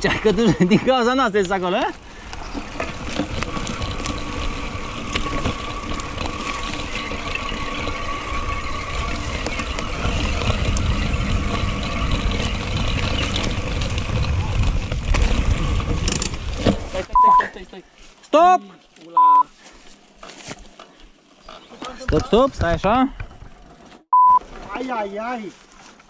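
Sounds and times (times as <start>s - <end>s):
bike tyres on dirt trail: 0.0s - 26.0s
bike clicks and rattles: 1.2s - 17.1s
wind rumble on microphone: 2.4s - 16.8s.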